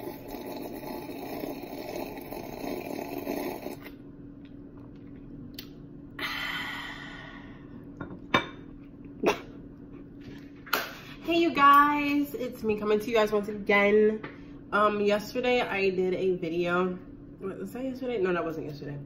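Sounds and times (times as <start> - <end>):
person gulping a drink: 0.0 - 4.0
steady low hum: 0.0 - 19.0.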